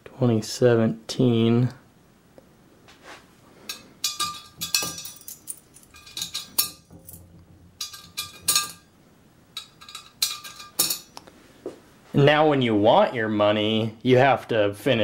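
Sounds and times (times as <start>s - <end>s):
coin clinking into steel cylinder: 3.7s - 8.9s, 9.6s - 11.2s.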